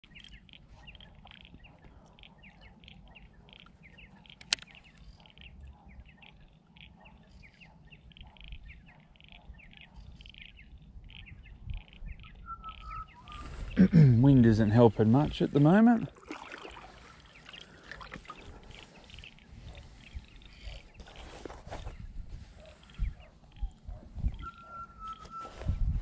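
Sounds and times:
small birds chirping: 0:00.0 - 0:26.0
sharp click: 0:04.3 - 0:04.8
wind rumble on microphone: 0:08.2 - 0:13.9, 0:18.4 - 0:26.0.

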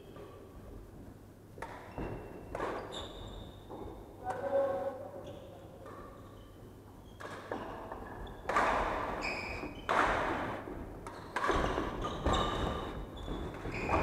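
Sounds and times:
racket hitting shuttlecock: 0:08.5 - 0:09.2, 0:09.9 - 0:12.4
shoes squeaking on wooden floor: 0:11.1 - 0:14.0.

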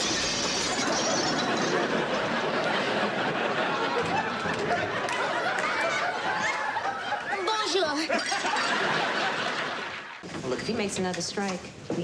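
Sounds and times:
audience laughing: 0:00.9 - 0:10.2.

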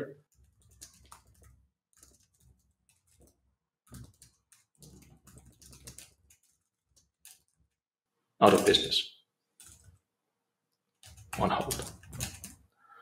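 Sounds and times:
typing on computer keyboard: 0:00.3 - 0:07.8, 0:09.6 - 0:10.0, 0:11.0 - 0:12.7.

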